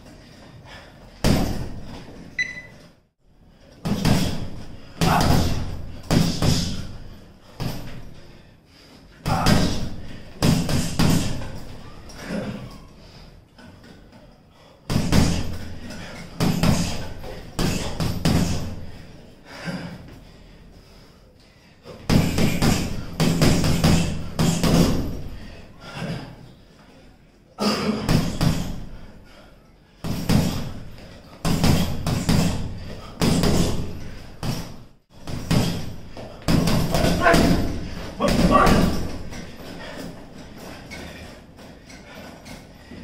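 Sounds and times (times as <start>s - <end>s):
gloves punching heavy bag: 1.2s - 2.0s, 3.8s - 8.1s, 9.2s - 11.8s, 14.9s - 19.0s, 22.0s - 25.5s, 27.9s - 29.0s, 30.0s - 41.0s.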